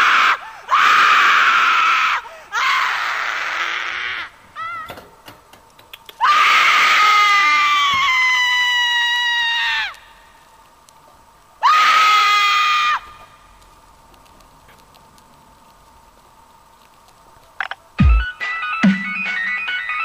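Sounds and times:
high-pitched screaming: 6.2s - 10.1s.

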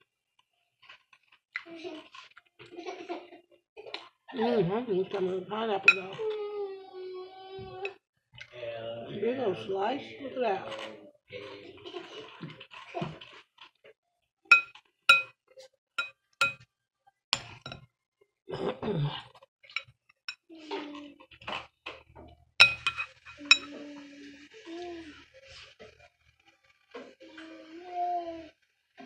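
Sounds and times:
metal utensil clinking on glass bowl: 5.9s - 6.2s, 14.5s - 15.3s, 16.0s - 16.6s, 17.4s - 17.8s, 22.6s - 23.7s.

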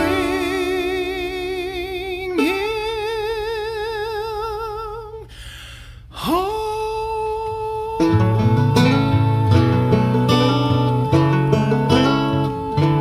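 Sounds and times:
man singing with vibrato: 0.0s - 13.0s
singer breathing: 5.2s - 6.3s.

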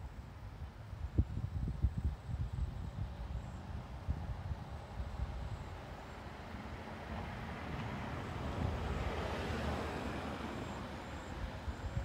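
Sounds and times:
car passing by: 4.4s - 12.0s.

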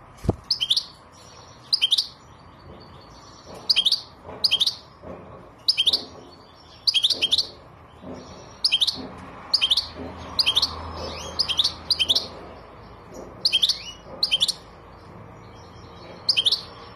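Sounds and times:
finch twittering: 0.5s - 16.9s.

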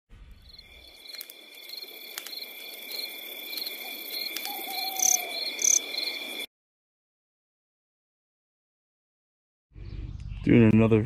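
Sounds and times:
insects chirring: 0.3s - 6.5s.

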